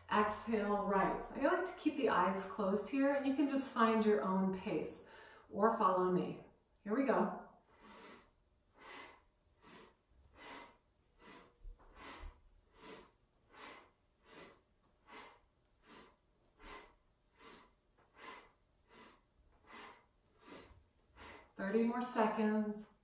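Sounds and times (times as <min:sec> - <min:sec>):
woman breathing rapidly: 0:05.0 - 0:05.5, 0:07.6 - 0:22.2.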